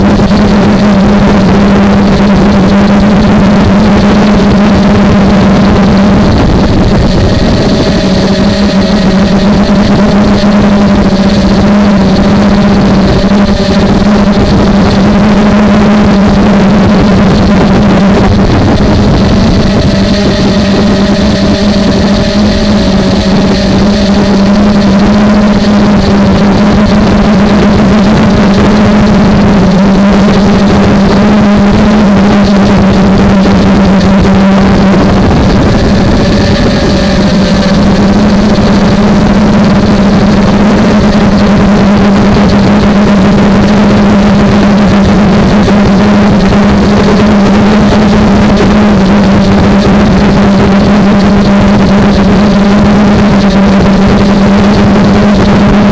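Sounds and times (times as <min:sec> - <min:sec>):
quadcopter motors droning: 0:00.0 - 0:55.8.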